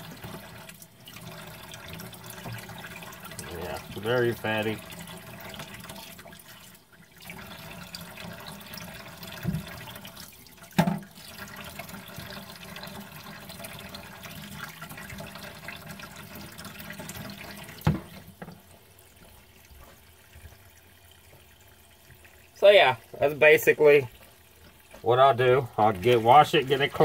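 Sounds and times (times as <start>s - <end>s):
tap water running into sink: 0.0s - 27.0s.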